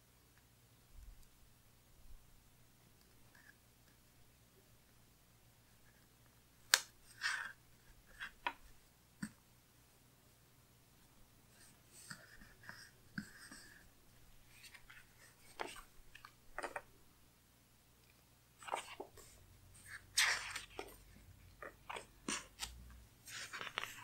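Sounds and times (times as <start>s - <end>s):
paper rustling: 18.6s - 24.0s.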